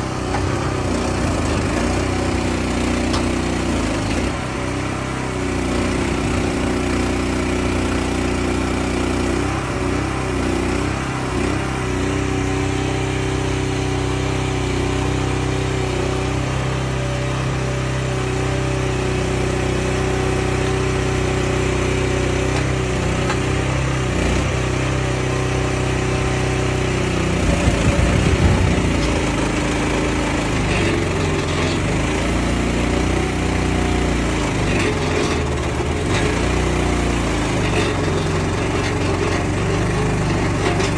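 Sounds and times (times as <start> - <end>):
log loader engine running: 0.0 - 40.9
loud rough clatter: 19.4 - 40.9.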